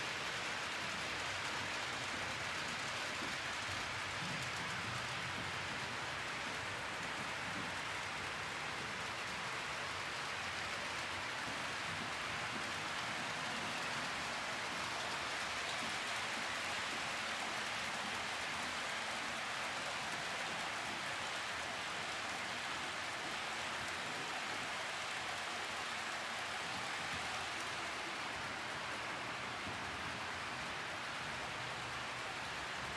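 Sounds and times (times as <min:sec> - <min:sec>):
model train wheels hissing on rails: 0:00.0 - 0:32.9.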